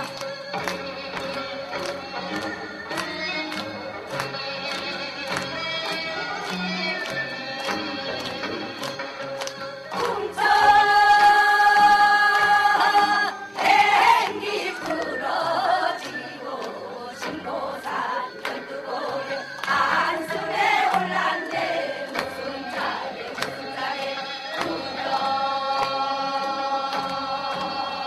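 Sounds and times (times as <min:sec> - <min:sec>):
women singing folk song: 0:09.9 - 0:28.0.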